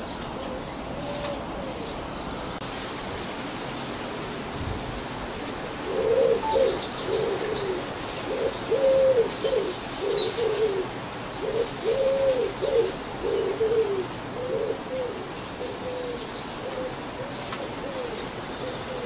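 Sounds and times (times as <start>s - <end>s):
pigeon cooing: 0.1s - 2.2s, 5.8s - 19.0s
small birds chirping: 5.2s - 13.9s.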